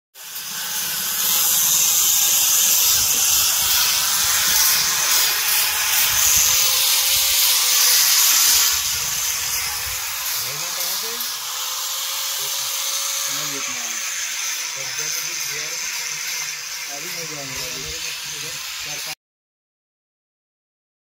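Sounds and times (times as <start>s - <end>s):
power tool hissing on metal railing: 0.2s - 19.2s.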